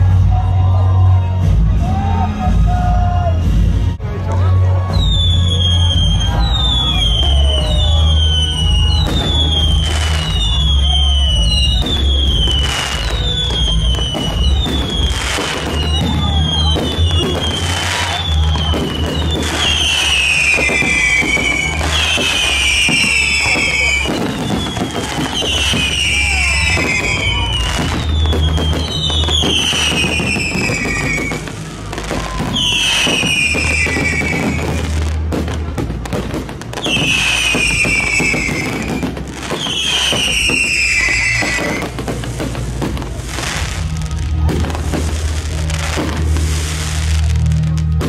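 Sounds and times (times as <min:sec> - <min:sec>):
fireworks bursting and crackling: 0:00.0 - 0:48.0
music playing: 0:00.0 - 0:48.0
falling whistle: 0:04.9 - 0:35.0, 0:36.8 - 0:42.0.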